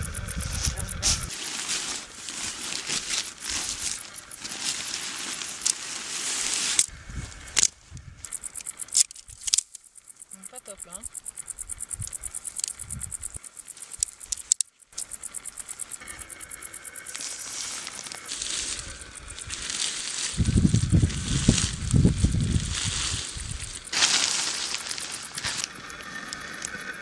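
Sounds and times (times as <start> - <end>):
nylon tent fabric rustling: 1.0 - 6.9, 19.4 - 25.7
sharp clicks: 12.5 - 15.0.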